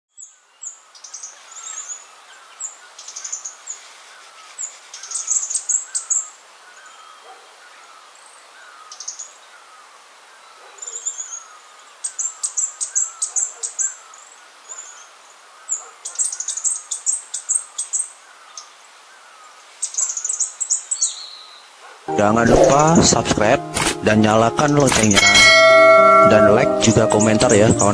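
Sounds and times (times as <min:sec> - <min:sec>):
bird singing high ticking notes: 0:22.1 - 0:27.9.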